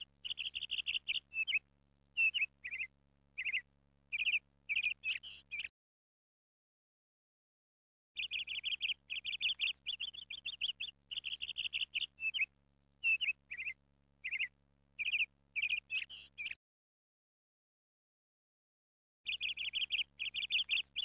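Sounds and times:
small bird chirping: 0.0s - 5.7s, 8.2s - 16.6s, 19.3s - 21.0s.

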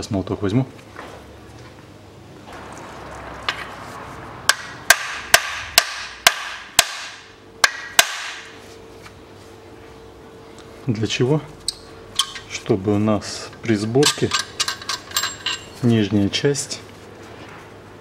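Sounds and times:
hammer striking steel bolt: 4.5s - 8.4s.

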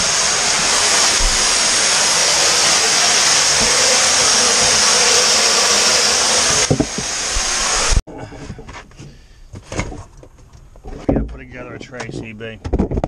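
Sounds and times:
water spraying from broken pipe: 0.0s - 8.0s.

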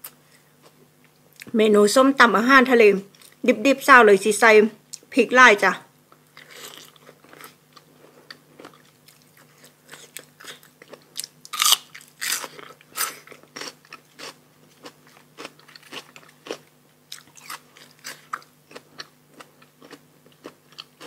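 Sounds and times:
person chewing crunchy food: 6.2s - 21.0s.

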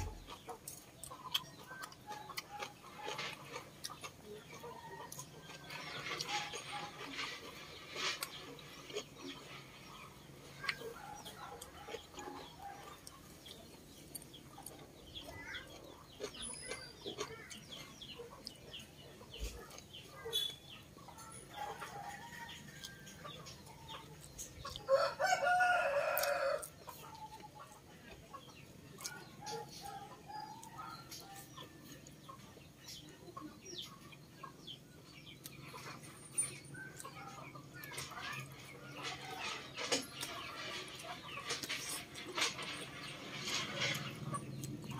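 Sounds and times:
chewing and mouth sounds: 0.0s - 20.6s
chickens clucking: 0.0s - 44.9s
rooster crowing: 24.9s - 26.8s.

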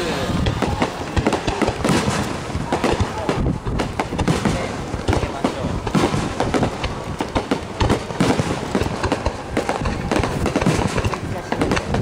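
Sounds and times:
crackling firework bursts: 0.0s - 12.0s
fireworks bangs and pops: 0.0s - 12.0s.

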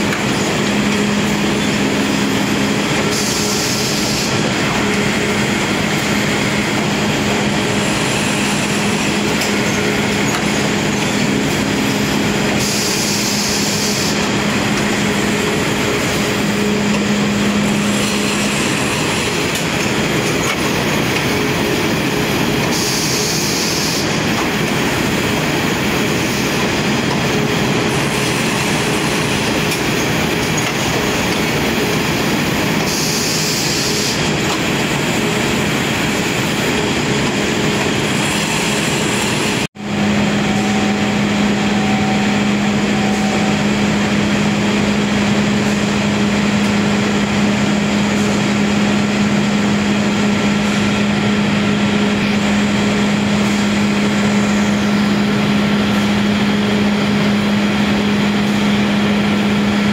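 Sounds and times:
low machine hum: 0.0s - 22.7s.

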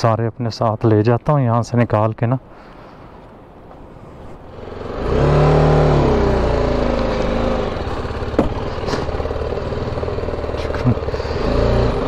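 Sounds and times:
motorcycle engine accelerating: 4.4s - 12.0s.

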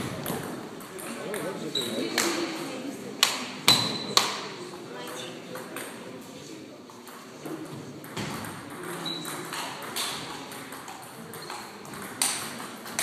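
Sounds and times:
table tennis ball hits: 0.0s - 2.4s, 3.2s - 4.6s, 7.0s - 13.0s
background hum in a hall: 0.0s - 13.0s.

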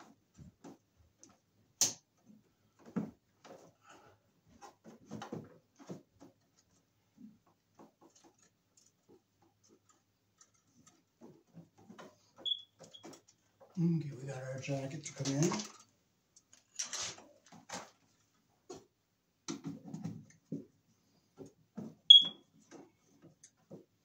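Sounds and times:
cable rustling in metal panel: 14.7s - 18.3s.

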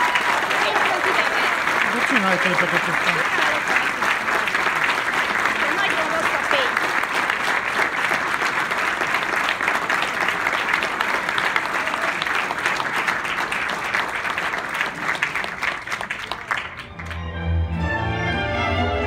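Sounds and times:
audience applause: 0.0s - 17.8s
string music: 16.8s - 19.0s.

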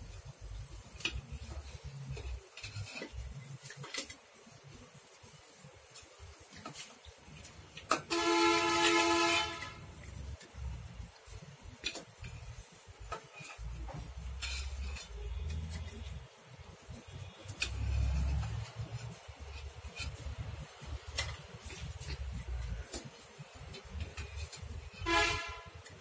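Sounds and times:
metal spoon scraping a pot: 0.6s - 4.2s, 7.9s - 26.0s
horn steady tone: 8.1s - 9.9s, 24.2s - 25.9s.

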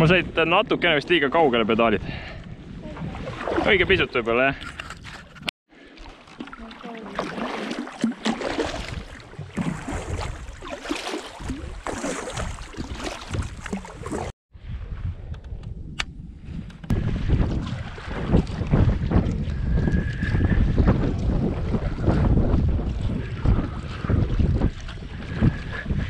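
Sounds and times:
wind buffeting microphone: 0.0s - 5.5s, 11.4s - 26.0s
water lapping against a hull: 0.0s - 14.4s, 16.9s - 26.0s
paddle strokes splashing: 3.0s - 3.8s, 5.7s - 14.3s.

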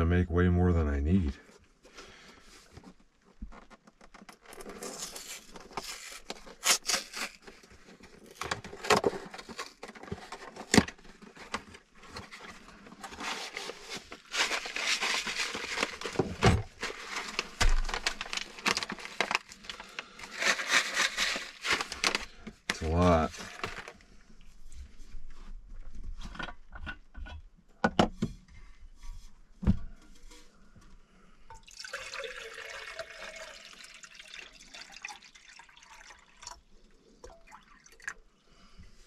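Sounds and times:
food packets crinkling: 4.5s - 11.9s, 12.7s - 24.0s.

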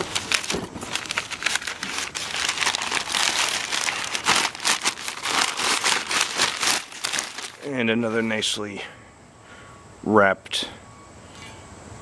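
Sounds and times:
packing paper crinkling: 0.0s - 7.7s.

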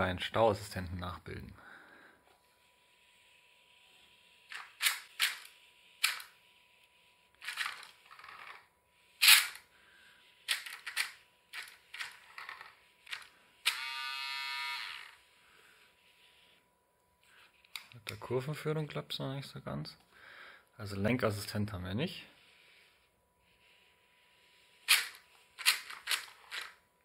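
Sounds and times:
toy car gear motor buzzing: 3.3s - 6.4s, 7.4s - 9.6s, 10.5s - 15.3s, 24.8s - 26.8s.

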